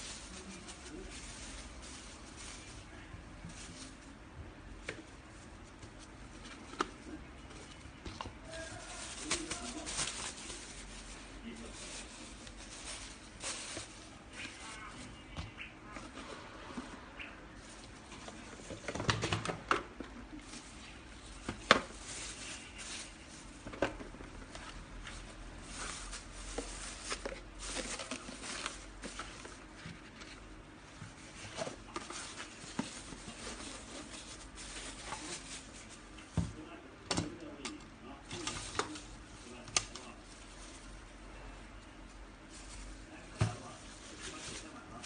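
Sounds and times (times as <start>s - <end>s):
plastic bags rustling: 0.0s - 37.6s, 38.2s - 45.0s.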